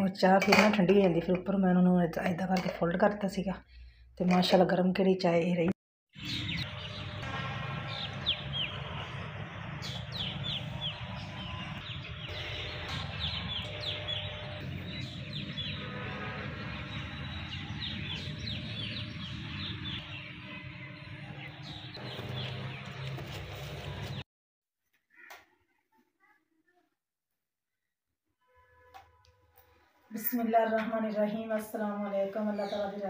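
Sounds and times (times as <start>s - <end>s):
birds chirping: 6.2s - 24.2s, 31.7s - 33.0s.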